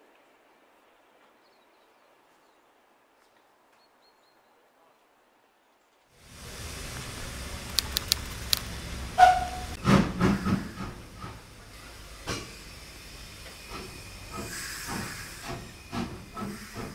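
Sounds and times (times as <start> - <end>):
steam locomotive hissing steam: 6.2 - 16.9
sharp clicks: 7.6 - 8.8.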